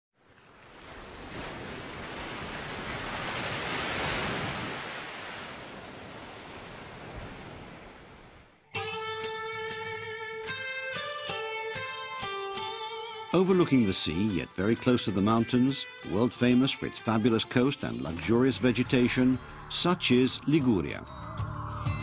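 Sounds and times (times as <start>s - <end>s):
sea surf washing: 0.3s - 8.6s
plucked guitar music: 8.7s - 22.0s.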